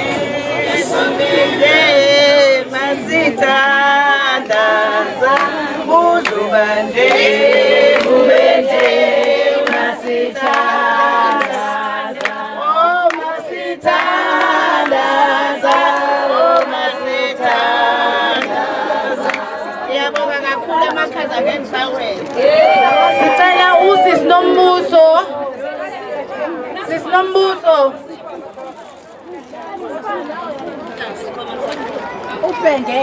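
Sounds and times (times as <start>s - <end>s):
group singing unaccompanied: 0.0s - 21.6s, 23.2s - 25.4s.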